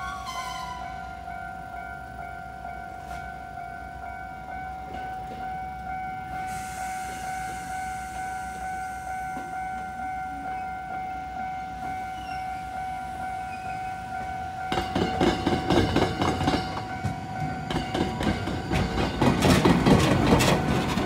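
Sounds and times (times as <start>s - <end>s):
approaching electric train hiss: 6.3s - 9.6s.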